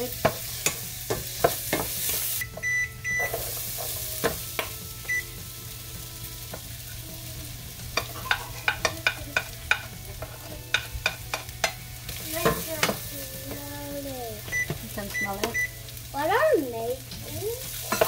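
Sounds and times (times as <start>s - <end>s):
potatoes sizzling in a frying pan: 0.0s - 18.0s
wooden spatula scraping a pan: 7.8s - 13.7s.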